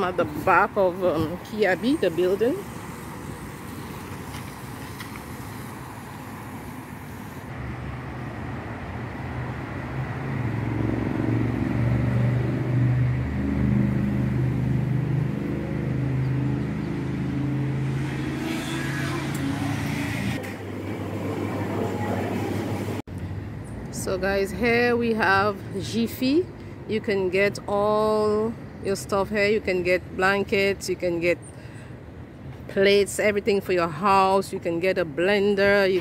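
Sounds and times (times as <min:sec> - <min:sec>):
vehicle engine humming: 0:00.0 - 0:26.4.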